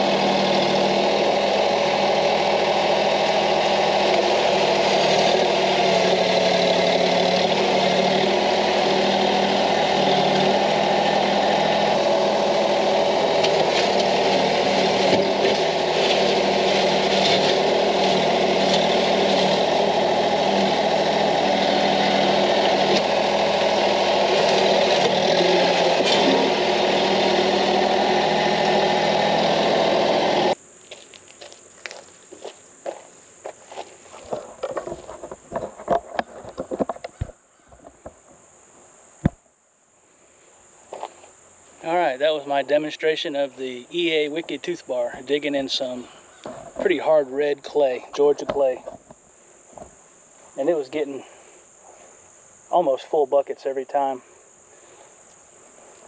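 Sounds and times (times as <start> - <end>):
diesel tractor engine running: 0.0 - 38.1
light footsteps: 30.8 - 38.4.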